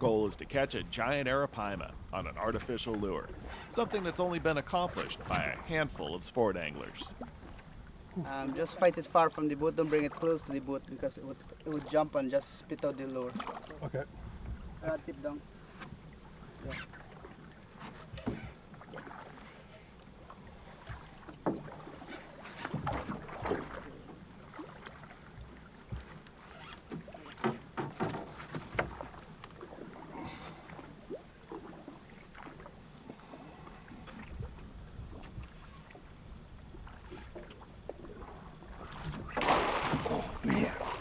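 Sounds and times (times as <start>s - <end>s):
water washing: 0.0s - 7.5s, 38.8s - 41.0s
wind: 0.0s - 41.0s
knocks on wooden boat: 27.0s - 29.0s.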